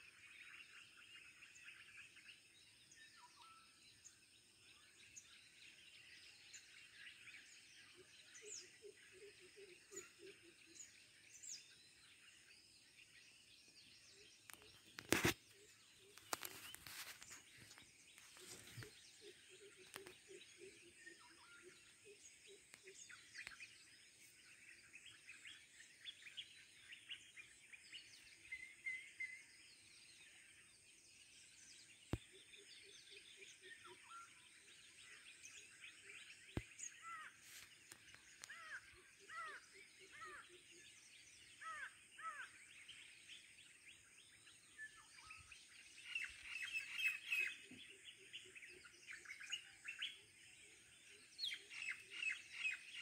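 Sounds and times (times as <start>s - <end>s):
birds chirping and calling: 13.8s - 29.5s, 31.4s - 53.0s.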